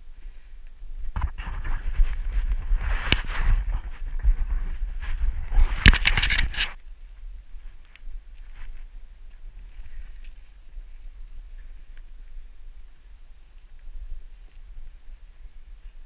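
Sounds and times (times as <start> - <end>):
camera handling rumble and scraping: 1.0 - 6.9.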